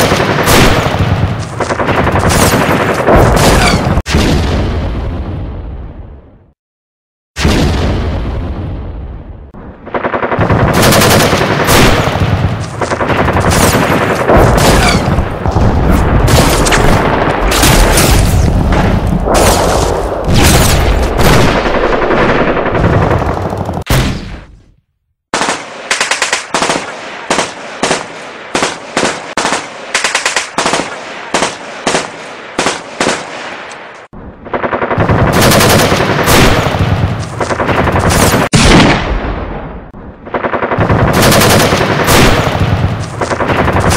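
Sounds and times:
machine-gun fire: 0.0s - 4.5s, 9.8s - 24.3s, 25.3s - 33.6s, 34.4s - 43.9s
single gunshots: 0.0s - 4.9s, 10.8s - 21.7s, 23.8s - 24.6s, 35.4s - 39.9s.

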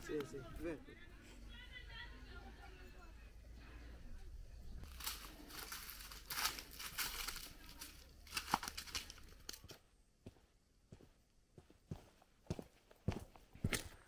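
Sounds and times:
footsteps on dry leaves: 4.8s - 9.7s.

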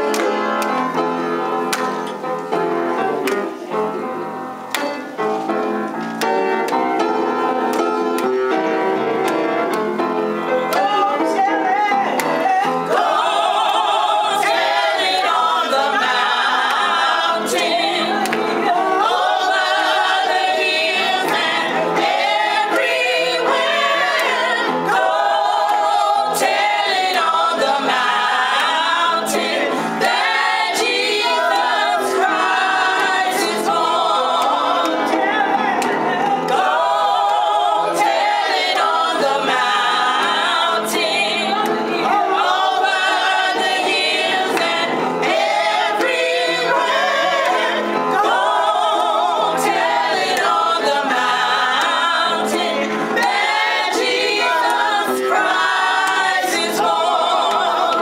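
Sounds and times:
sustained keyboard chords: 0.0s - 58.0s
women singing gospel in harmony: 12.4s - 58.0s.

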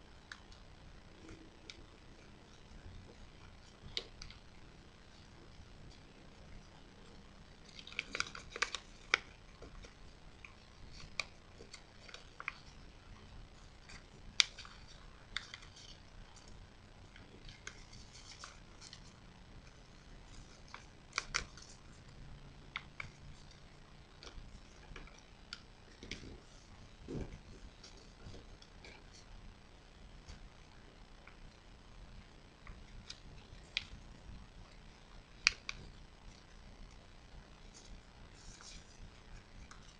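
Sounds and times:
paper being folded and creased: 5.1s - 29.3s, 37.6s - 39.9s.

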